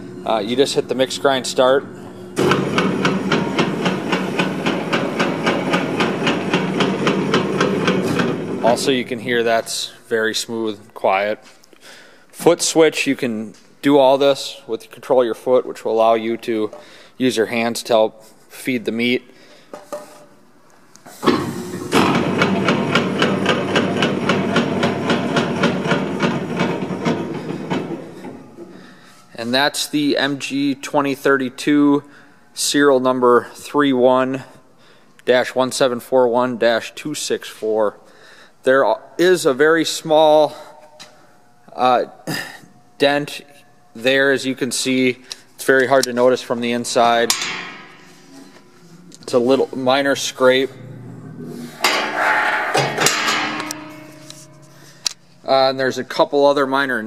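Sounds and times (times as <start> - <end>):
meat grinder running: 2.4 - 8.6
rapid mechanical knocking: 2.4 - 8.9, 21.9 - 28.0.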